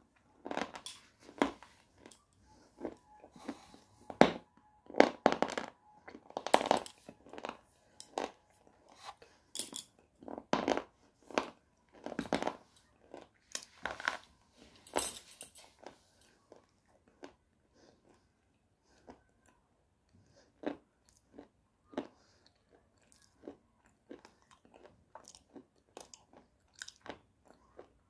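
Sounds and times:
crunching and chewing clay: 4.8s - 14.4s, 15.7s - 28.0s.

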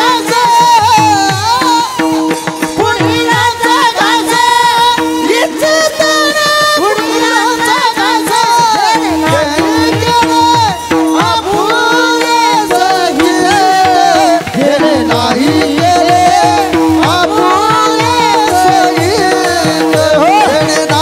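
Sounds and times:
drum strokes: 0.0s - 21.0s
men singing devotional song: 0.0s - 21.0s
held accompanying tone: 7.0s - 21.0s.

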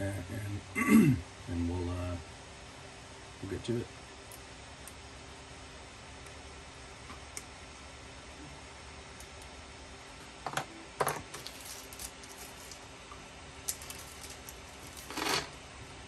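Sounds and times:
scraping rustle: 11.3s - 12.9s, 13.7s - 15.6s.

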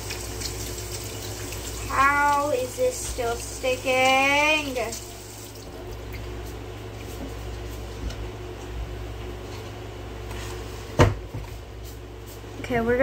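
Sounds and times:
room hum: 0.0s - 13.0s
knock on kitchen counter: 11.0s - 11.5s.

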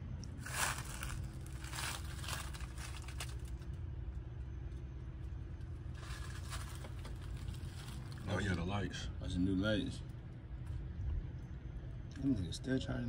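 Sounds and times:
steady low hum: 0.0s - 13.0s
rustling handling noise: 0.4s - 3.8s, 5.9s - 8.3s.

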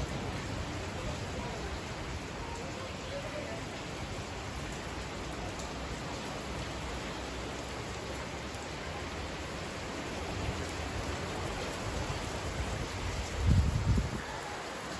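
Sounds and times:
heavy rain falling: 0.0s - 14.9s
low thunder rumble: 12.7s - 14.3s.

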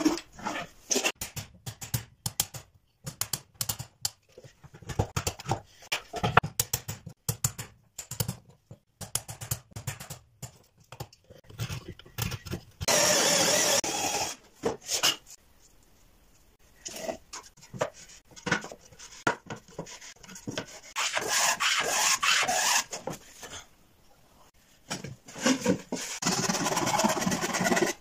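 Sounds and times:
cordless drill boring into wood: 12.9s - 14.4s.

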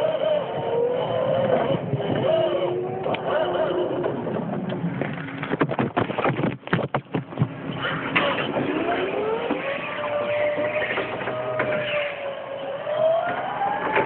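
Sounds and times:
knocks and rattles: 4.1s - 8.4s
electric motor whining: 8.3s - 14.0s.

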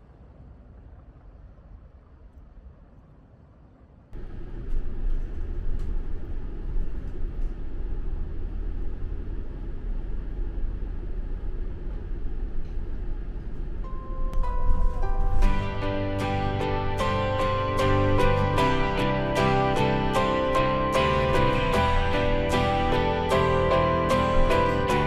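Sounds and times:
bus engine and road rumble: 3.9s - 25.0s
music notes: 13.9s - 25.0s.

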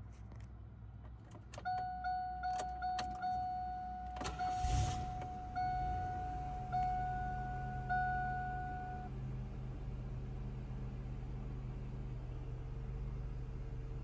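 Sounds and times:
car engine cranking and idling: 0.0s - 14.0s
dashboard warning chime dinging: 1.5s - 9.1s.

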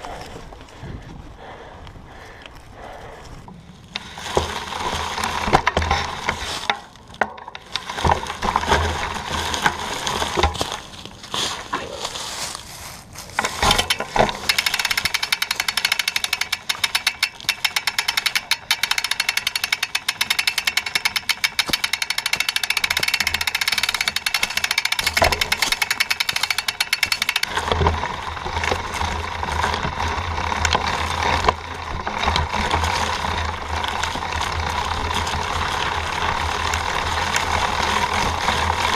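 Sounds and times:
bike frame and chain rattling: 0.0s - 38.9s
rough rumble: 0.0s - 38.9s
tyres crunching dry leaves: 2.2s - 38.9s
fast even clicking rattle: 13.4s - 38.9s.

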